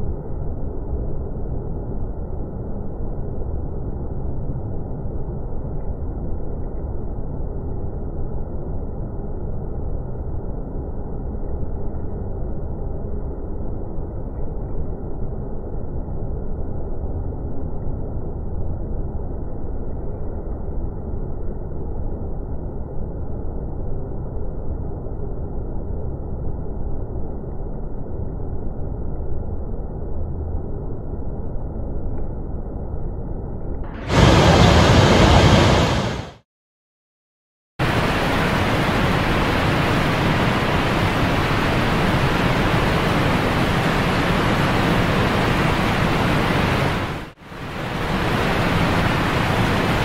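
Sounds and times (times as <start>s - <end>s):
waterfall rushing into pool: 34.0s - 36.2s, 37.8s - 50.0s.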